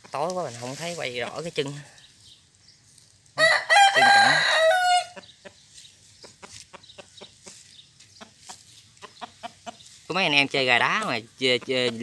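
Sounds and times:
rooster crowing: 3.4 - 5.2
chicken clucking: 3.4 - 12.0.

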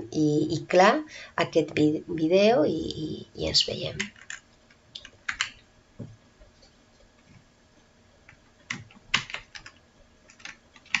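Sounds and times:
faint room hum: 0.0 - 11.0
computer keystrokes: 5.0 - 5.6, 8.3 - 11.0.

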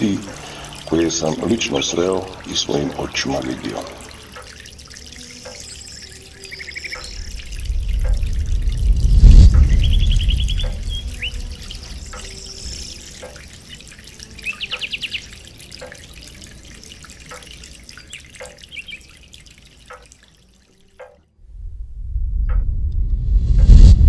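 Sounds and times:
high chirping trills: 0.0 - 8.7, 9.5 - 20.4
water dripping: 0.0 - 21.3
low rumble: 7.2 - 12.2, 21.4 - 24.0.

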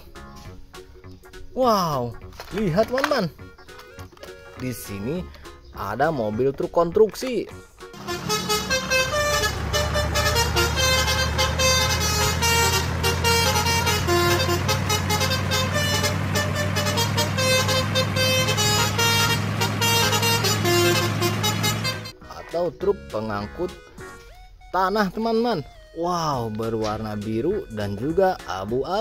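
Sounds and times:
low truck engine hum: 7.9 - 22.2
horn toots: 7.9 - 22.4
changing higher tones: 8.0 - 22.1.

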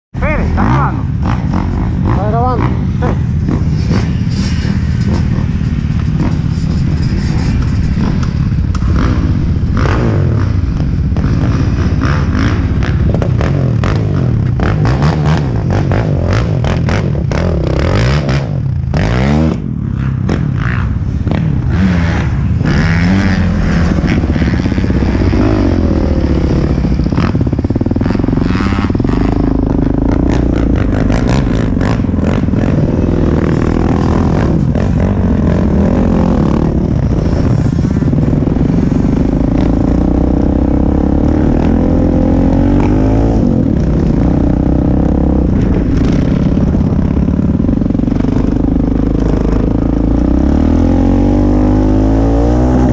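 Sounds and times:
quad engine revving: 0.2 - 52.9
scraping and clattering on sand: 3.5 - 8.9.

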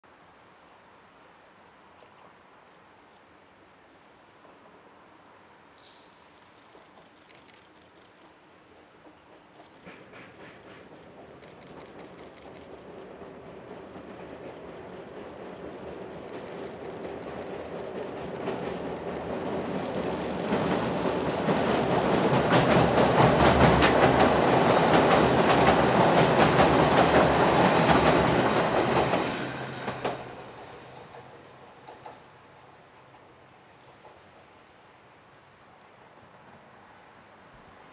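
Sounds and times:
train crossing steel bridge: 4.0 - 37.9
wheels clattering over rail joints: 6.6 - 32.3.

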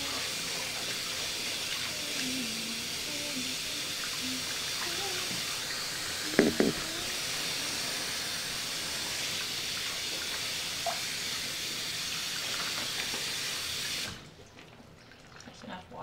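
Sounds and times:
faucet running into sink: 0.0 - 14.2
brief knock: 6.4 - 6.8.

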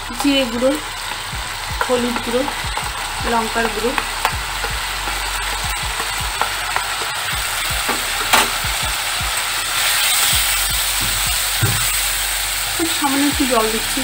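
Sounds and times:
oil sizzling in a pan: 0.0 - 14.0
spatula stirring: 1.0 - 9.0.

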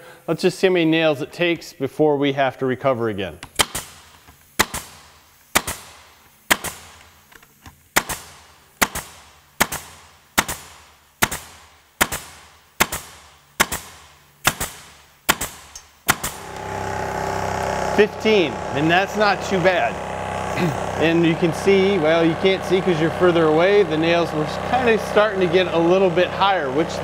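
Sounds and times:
air compressor humming: 3.2 - 27.0
pneumatic nailer firing into wood: 3.4 - 18.0.

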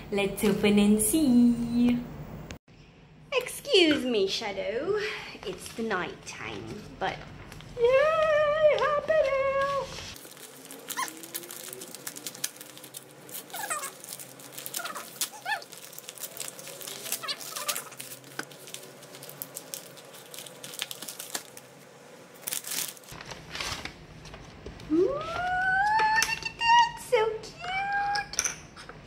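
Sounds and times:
paper wrapping crinkling: 7.4 - 25.7.

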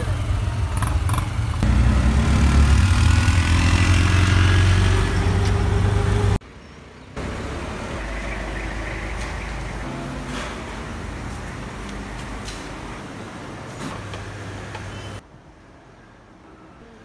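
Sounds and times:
auto-rickshaw engine running: 0.0 - 6.4
street noise: 0.0 - 17.0.

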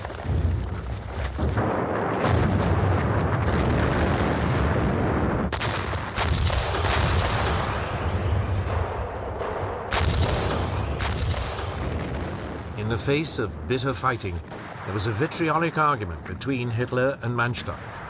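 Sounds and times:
artillery fire: 0.0 - 16.4
gunfire: 1.3 - 13.0.

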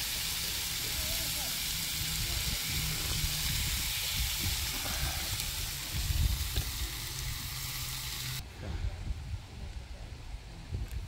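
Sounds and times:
bacon sizzling in frying pans: 0.0 - 8.4
gas stove low rumble: 1.6 - 8.4.

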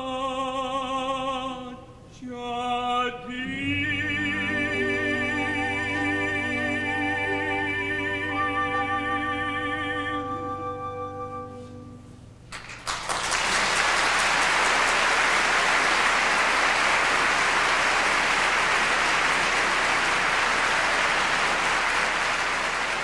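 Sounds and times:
orchestra chord: 4.2 - 12.2
audience applauding: 12.5 - 23.0.

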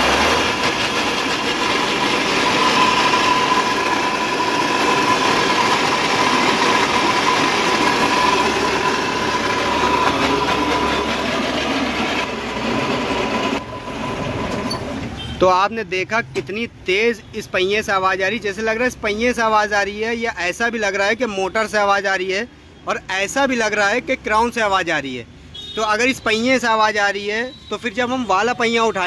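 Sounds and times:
electric motor whining: 0.0 - 14.8.

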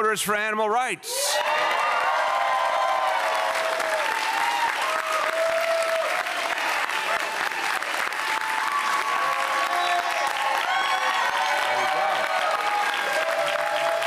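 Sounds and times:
crowd clapping: 1.4 - 14.0
whooping shouts: 8.5 - 14.0.

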